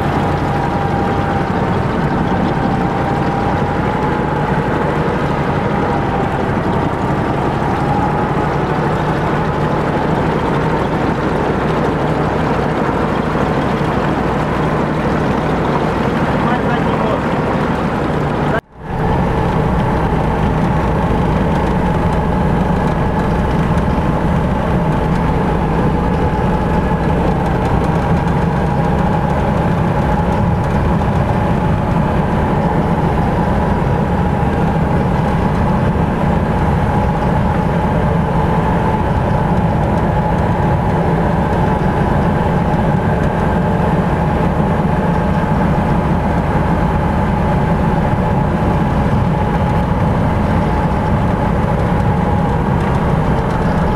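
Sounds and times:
off-road vehicle engine running: 0.0s - 53.9s.

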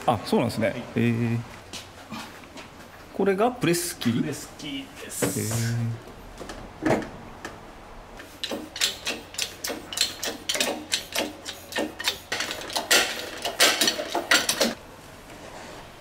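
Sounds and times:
metallic clicks and clanks: 8.2s - 14.8s.

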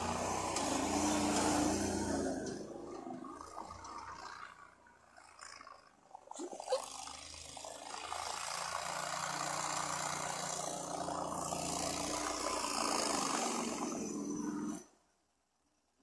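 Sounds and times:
vehicle engine driving through snow: 0.0s - 6.0s, 6.9s - 14.9s.

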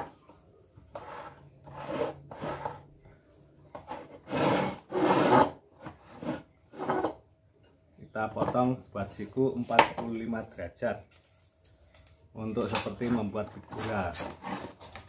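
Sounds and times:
wood scraping across wooden table: 0.9s - 2.9s, 3.7s - 7.2s, 13.0s - 15.0s.

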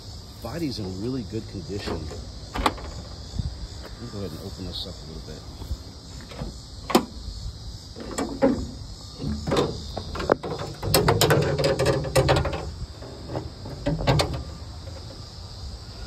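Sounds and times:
car hood latch clicks: 6.3s - 7.2s
rattling metal clatter: 8.0s - 15.1s.

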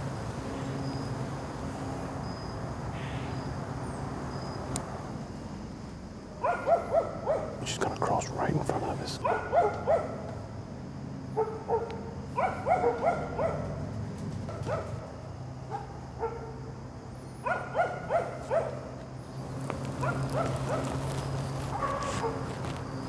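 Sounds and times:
dogs barking: 6.4s - 10.4s, 11.3s - 13.8s, 14.5s - 16.7s, 17.4s - 19.0s, 20.0s - 22.6s.

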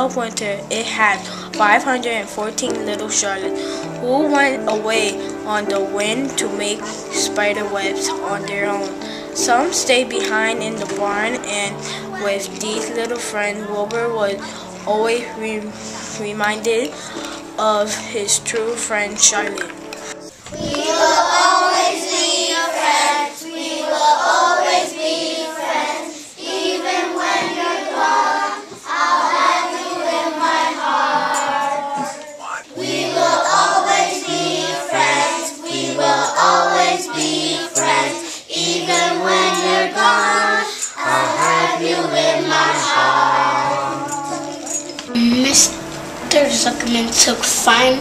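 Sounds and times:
children singing: 0.0s - 48.0s
low bass line: 45.1s - 48.0s.

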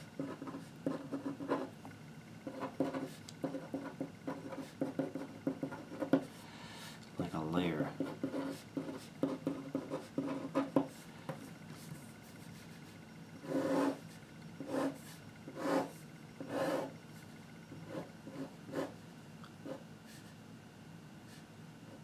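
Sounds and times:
pen scratching on paper: 0.0s - 1.7s, 2.4s - 6.4s, 7.9s - 12.8s, 13.4s - 17.0s, 17.8s - 19.0s.

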